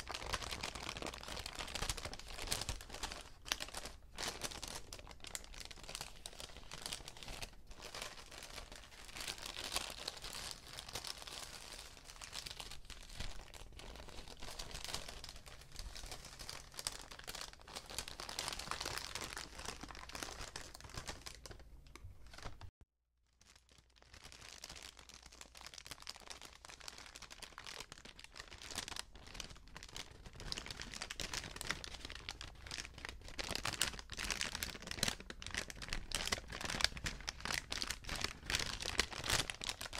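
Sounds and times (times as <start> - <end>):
paper bags crinkling: 23.5 - 39.9.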